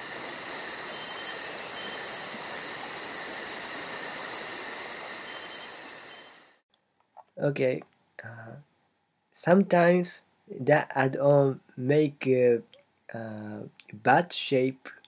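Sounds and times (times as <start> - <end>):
crickets and insects chirping: 0.0 - 6.6.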